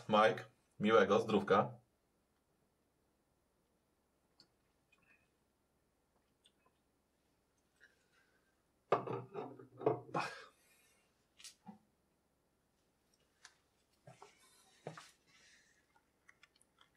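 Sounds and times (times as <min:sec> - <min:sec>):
glass knocking on surface: 0:08.9 - 0:10.1
rustling and shuffling: 0:12.7 - 0:16.0.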